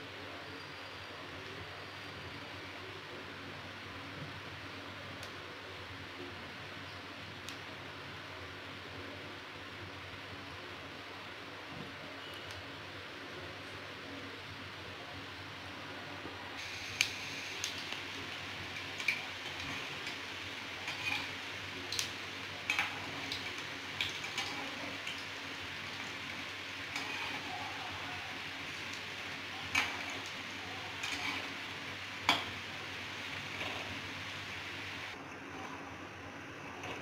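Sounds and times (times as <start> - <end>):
food deep-frying in hot oil: 16.6 - 35.2.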